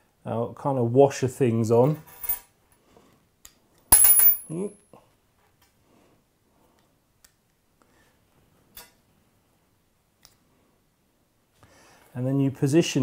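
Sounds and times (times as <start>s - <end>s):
metal cleat clinking: 3.9s - 4.5s.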